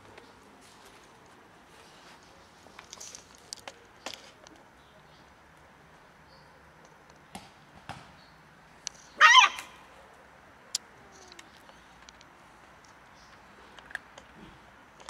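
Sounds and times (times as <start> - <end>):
animal wavering high cry: 9.2 - 9.7
light clicks and taps: 10.7 - 14.4.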